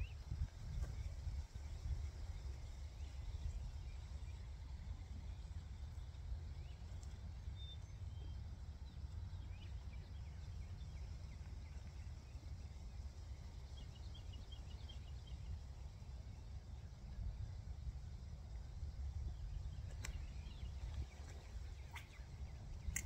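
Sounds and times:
faint bird chirps: 0:19.2 - 0:23.0.

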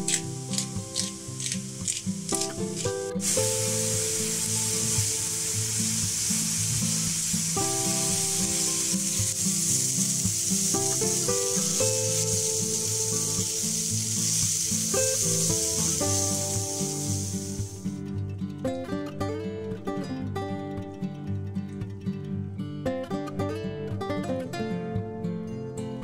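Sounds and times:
food sizzling in a pan: 0:00.0 - 0:18.0
background music: 0:00.0 - 0:26.0.

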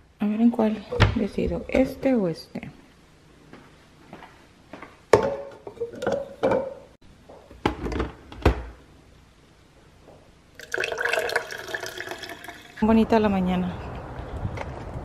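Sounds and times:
metal cups clunking on countertop: 0:05.1 - 0:06.9
coffee pouring into metal tumbler: 0:10.6 - 0:12.8.

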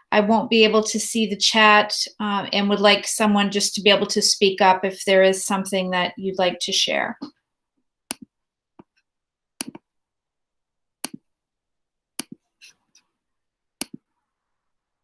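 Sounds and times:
computer mouse clicks: 0:08.1 - 0:09.8, 0:12.2 - 0:12.8, 0:13.8 - 0:14.0.

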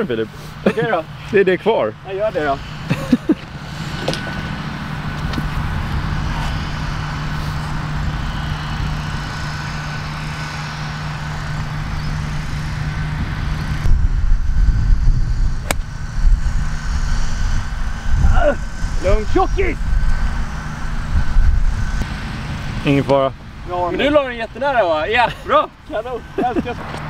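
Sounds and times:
low hum and rumble: 0:00.0 - 0:27.0
golf club striking ball: 0:15.6 - 0:16.0.

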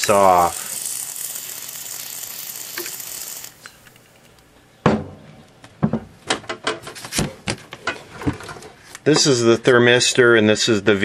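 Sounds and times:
aerosol spray hissing: 0:00.0 - 0:03.6.

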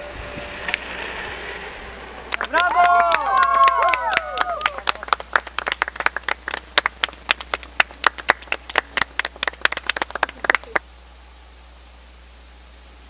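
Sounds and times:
group clapping: 0:02.3 - 0:10.8
steady hiss: 0:04.9 - 0:13.0.

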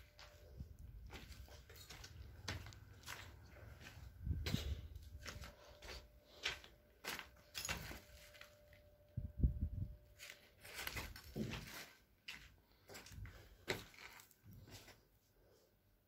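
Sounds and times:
footsteps on rubble: 0:00.0 - 0:08.7, 0:10.2 - 0:15.0
faint steady hum: 0:00.0 - 0:10.8.

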